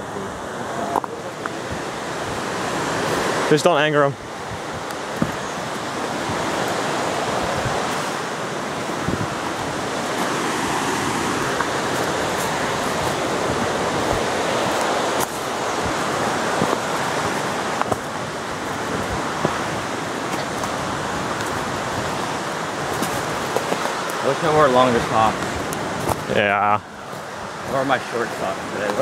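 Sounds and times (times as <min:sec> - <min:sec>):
steady rushing noise: 0:00.0 - 0:29.0
footsteps crunching on dry leaves: 0:09.8 - 0:24.2.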